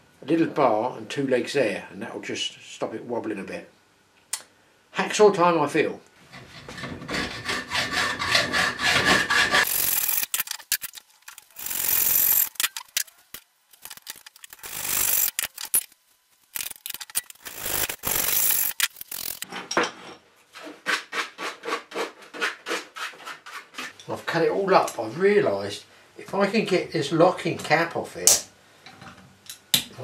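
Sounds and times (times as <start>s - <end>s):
hacksaw cutting metal: 6.6s - 15.9s, 16.6s - 19.5s.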